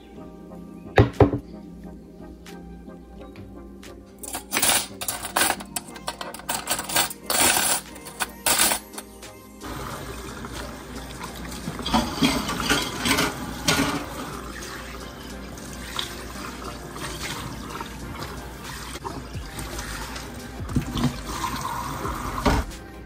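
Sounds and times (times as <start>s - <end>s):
dishes clinking: 4.2s - 9.1s, 11.8s - 14.2s.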